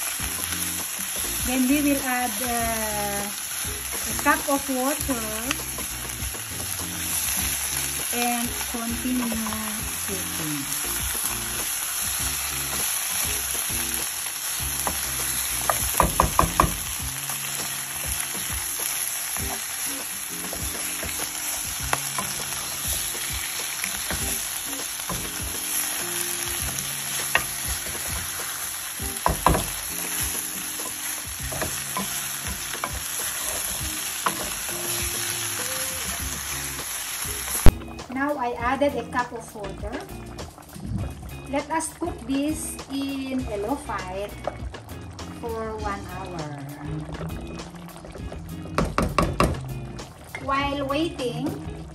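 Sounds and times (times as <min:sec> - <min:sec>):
meat sizzling in a frying pan: 0:00.0 - 0:46.6
spoon knocking against pan: 0:14.8 - 0:16.9, 0:20.4 - 0:25.6, 0:26.5 - 0:28.4, 0:29.0 - 0:35.0, 0:48.7 - 0:49.6
wooden spoon stirring: 0:17.7 - 0:37.7.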